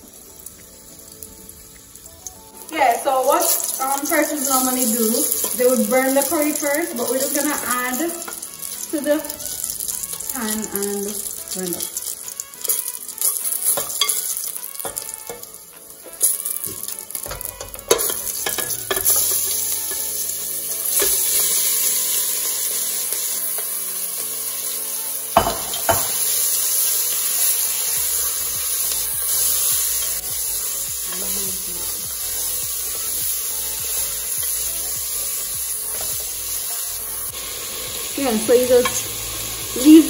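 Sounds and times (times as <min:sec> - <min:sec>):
meat sizzling in hot oil: 0:00.0 - 0:40.0
spoon knocking on pot: 0:16.7 - 0:19.4, 0:25.4 - 0:26.2.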